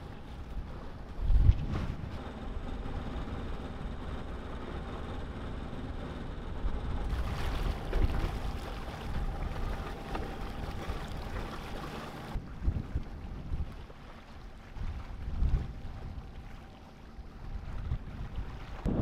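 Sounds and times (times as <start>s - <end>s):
water rushing along hull: 0.0s - 19.0s
wind buffeting microphone: 0.6s - 2.3s, 6.6s - 19.0s.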